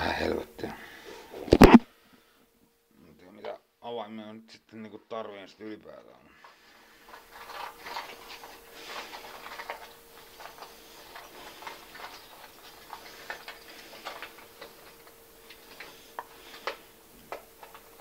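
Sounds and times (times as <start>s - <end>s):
faint steady hum: 0.0s - 18.0s
small hard objects clicking and rattling: 7.0s - 18.0s.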